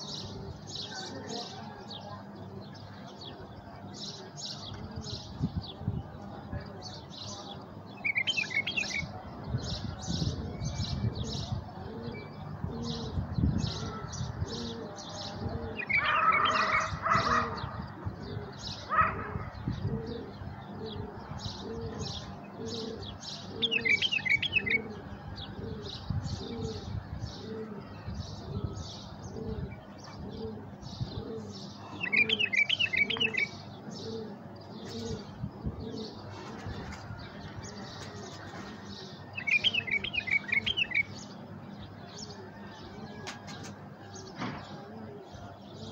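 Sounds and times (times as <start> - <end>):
bird chirping and trilling: 8.0 - 9.1, 15.6 - 17.8, 21.6 - 25.0, 25.9 - 36.3, 39.2 - 41.4.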